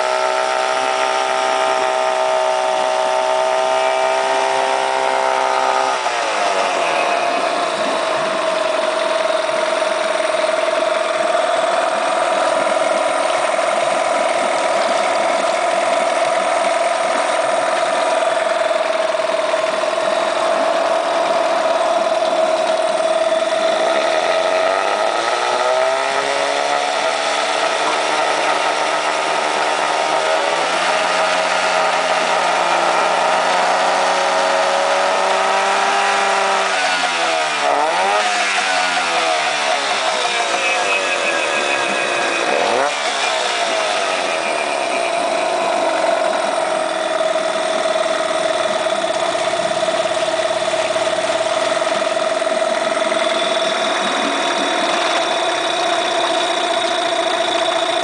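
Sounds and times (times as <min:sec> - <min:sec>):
outboard motor running: 0:00.0 - 0:58.0
propeller churning water: 0:00.0 - 0:58.0.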